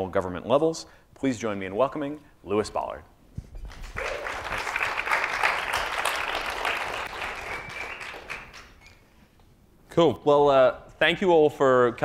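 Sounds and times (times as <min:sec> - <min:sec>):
audience applauding: 0:03.7 - 0:08.8.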